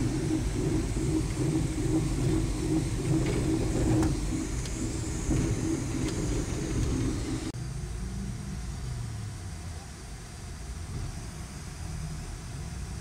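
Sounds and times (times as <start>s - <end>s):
faint rattles: 0.0s - 7.5s
bus engine and road rumble: 0.0s - 13.0s.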